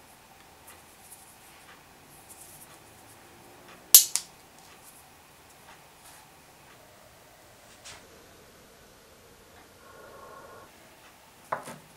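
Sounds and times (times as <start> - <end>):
magnets snapping together: 4.0 - 4.3.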